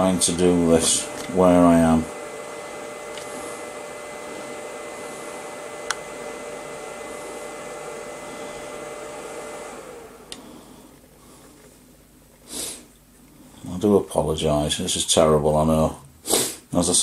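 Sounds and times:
small electric motor whining: 0.0 - 11.0.

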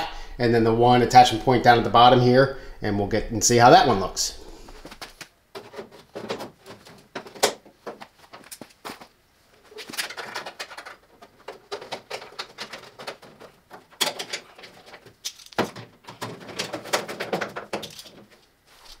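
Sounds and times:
metal parts clicking and rattling: 9.7 - 18.4.

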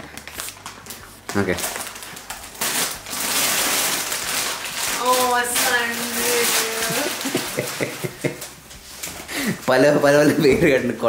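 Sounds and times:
wrapping paper tearing: 0.0 - 10.4
woman exclaiming: 5.0 - 7.3.

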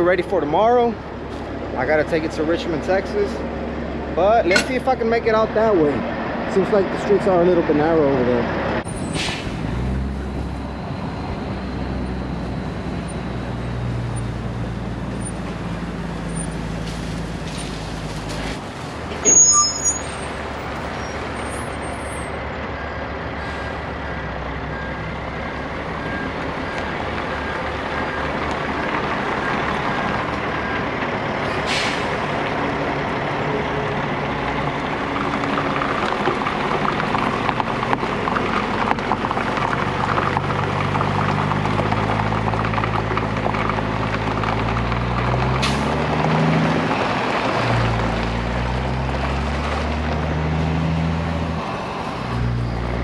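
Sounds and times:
diesel truck engine running: 0.0 - 19.2, 20.0 - 53.0.

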